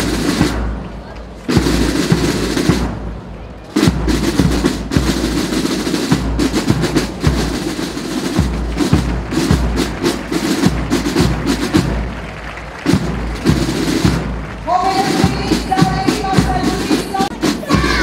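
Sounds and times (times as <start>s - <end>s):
snare drum rolls: 0.0s - 18.0s
bass drum beats: 12.9s - 18.0s.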